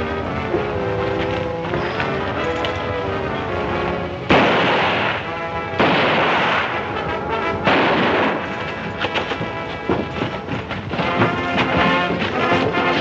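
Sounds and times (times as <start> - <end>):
dramatic film music: 0.0 - 13.0
pistol shots with echo: 4.3 - 7.0, 7.6 - 8.8.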